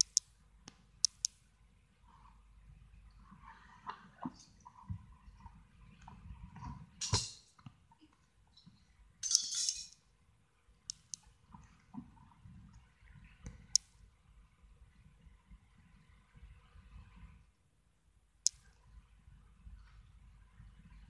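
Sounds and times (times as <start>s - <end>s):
sharp click: 0.0s - 1.4s.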